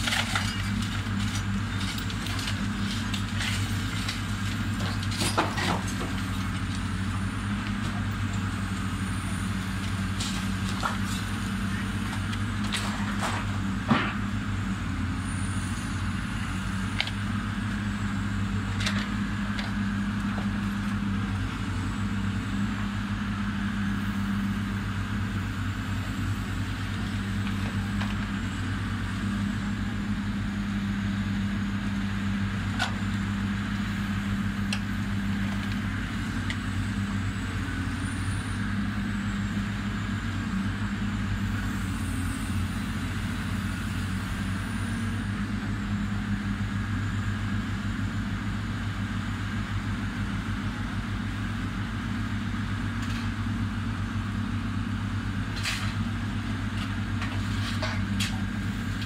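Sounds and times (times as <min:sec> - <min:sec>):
hydraulic grapple working: 0:00.0 - 0:14.4, 0:52.6 - 0:53.7, 0:54.4 - 0:59.0
diesel excavator engine: 0:00.0 - 0:59.0
sharp knocks from wreckage: 0:04.8 - 0:06.3, 0:12.6 - 0:14.2.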